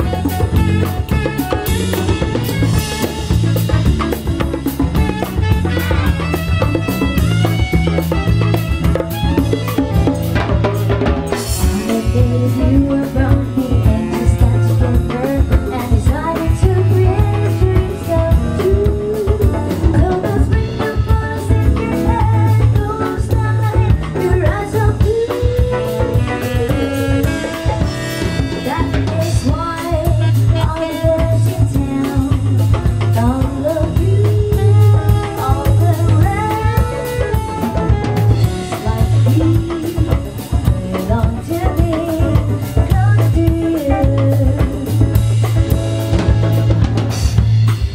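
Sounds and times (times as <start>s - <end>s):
drum kit: 0.0s - 47.9s
electric guitar: 0.0s - 47.9s
woman singing into microphone: 11.4s - 45.5s.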